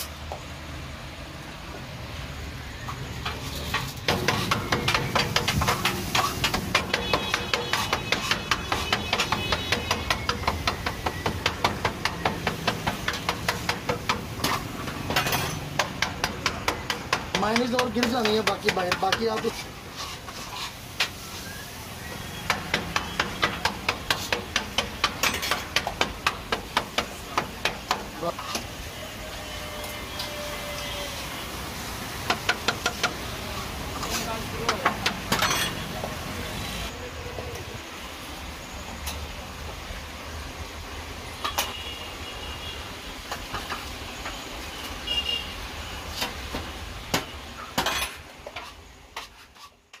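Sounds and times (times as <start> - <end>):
rapid sharp metal knocks: 3.7 - 19.5, 22.4 - 28.1.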